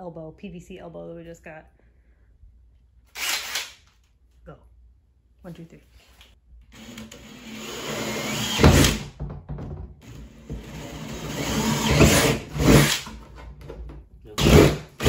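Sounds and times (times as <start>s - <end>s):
cordless drill boring through plastic: 6.8s - 9.0s, 10.4s - 13.1s.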